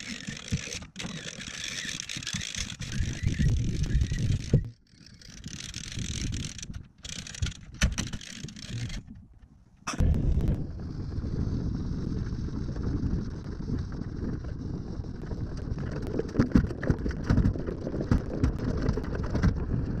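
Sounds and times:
wind on microphone: 2.7 - 4.7, 10.0 - 20.0.

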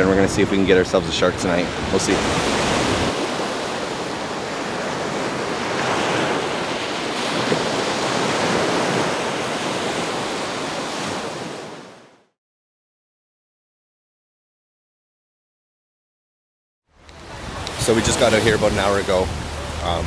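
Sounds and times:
small surf washing on beach: 1.3 - 12.1, 17.0 - 20.0.

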